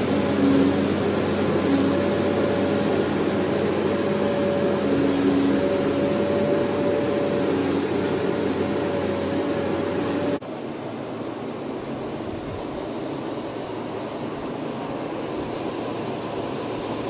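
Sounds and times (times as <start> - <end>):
heavy truck engine drone: 0.0 - 10.4.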